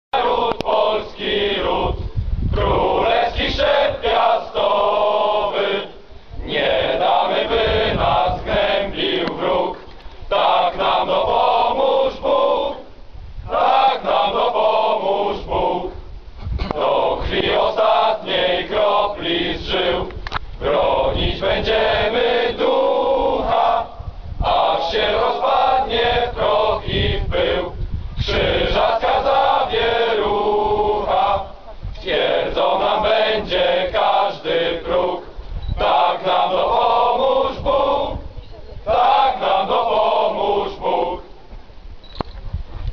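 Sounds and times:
men reciting in unison: 0.2s - 2.0s, 2.6s - 12.9s, 13.5s - 16.0s, 16.7s - 41.4s.

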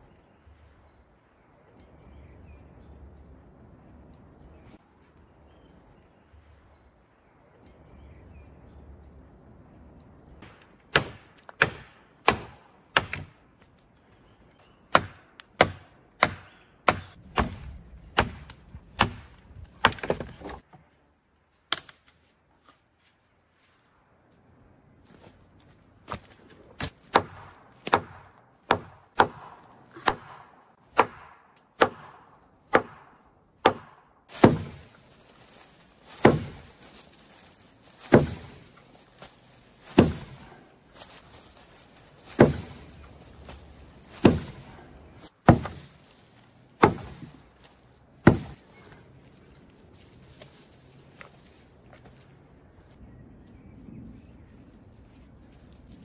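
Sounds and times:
wood being chopped: 10.4s - 13.4s, 14.9s - 20.6s, 21.7s - 22.1s, 26.1s - 35.0s, 36.1s - 36.7s, 38.0s - 38.7s, 39.8s - 40.5s, 42.2s - 46.0s, 46.8s - 47.4s, 48.2s - 48.6s.

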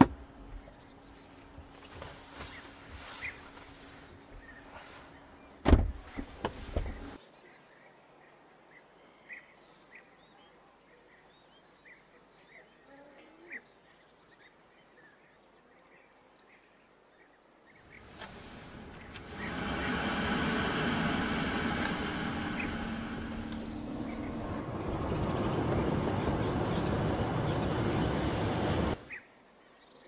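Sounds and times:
car door shutting: 0.0s - 0.2s, 5.6s - 7.2s, 17.9s - 24.7s.

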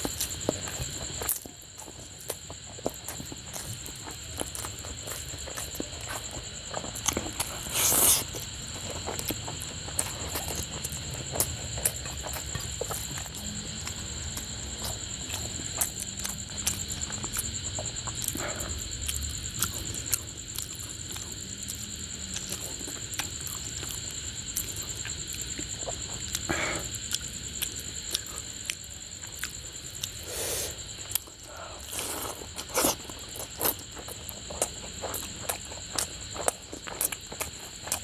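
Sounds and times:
chewing food: 0.0s - 38.0s.

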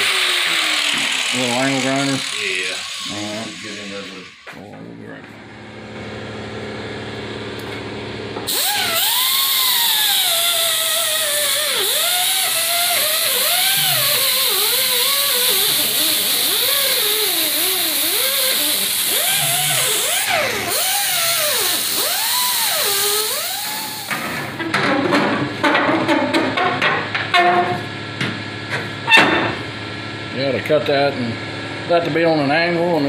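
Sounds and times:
angle grinder grinding steel: 0.0s - 4.5s, 8.5s - 24.6s.

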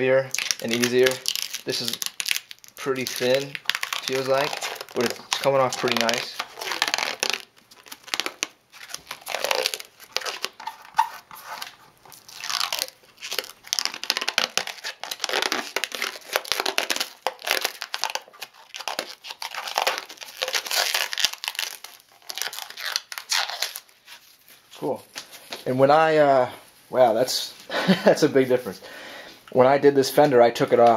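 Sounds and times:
rubber coating peeling: 0.3s - 24.5s.

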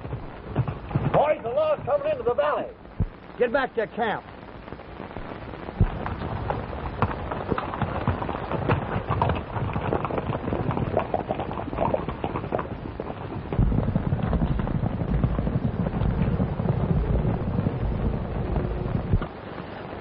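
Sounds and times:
horse hoofbeats clattering: 0.0s - 2.6s, 6.0s - 19.3s
deep steady noise: 0.0s - 20.0s
film track hiss: 0.0s - 20.0s.

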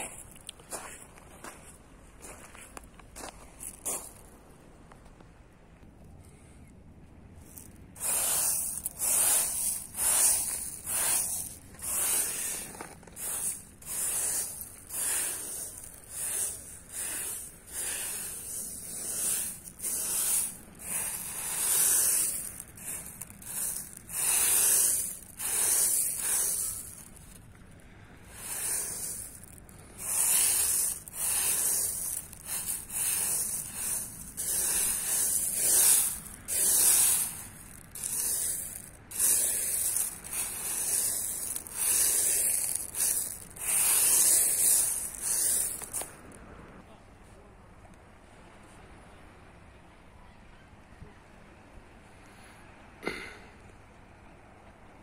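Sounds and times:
footsteps crunching on pebbles: 0.0s - 4.6s, 7.5s - 27.6s, 28.3s - 46.2s.

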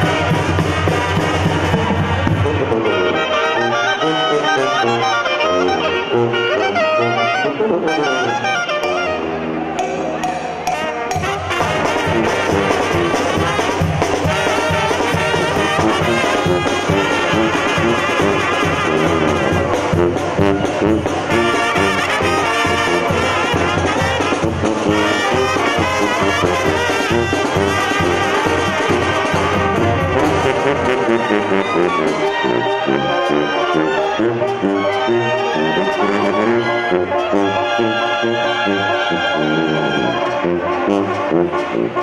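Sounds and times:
cymbals and timbales: 0.0s - 3.6s, 8.7s - 37.9s
brass band playing: 0.0s - 42.0s.

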